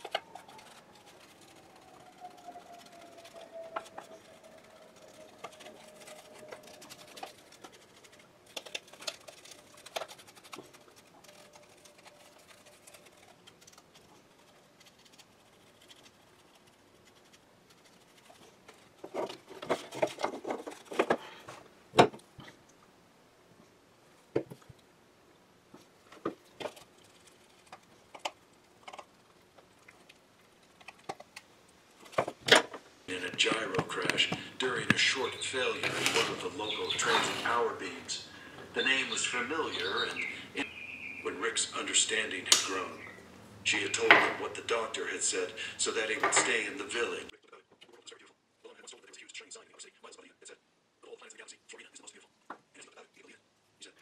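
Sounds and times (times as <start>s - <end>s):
paintbrush scratching on hull: 0.0s - 21.0s, 34.8s - 38.0s.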